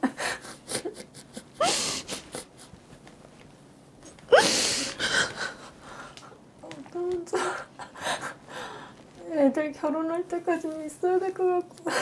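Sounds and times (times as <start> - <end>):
woman sobbing: 0.0 - 2.7, 4.3 - 6.0, 7.2 - 8.7.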